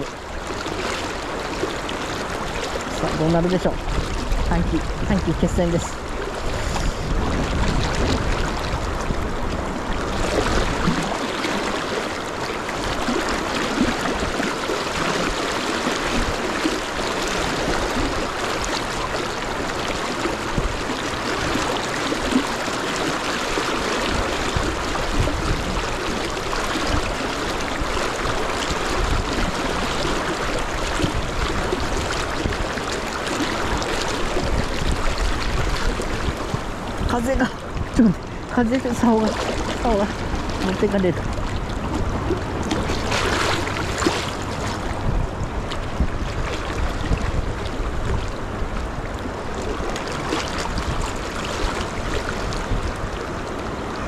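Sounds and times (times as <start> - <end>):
river rapids rushing: 0.0 - 45.6
wind rumble on microphone: 0.0 - 54.0.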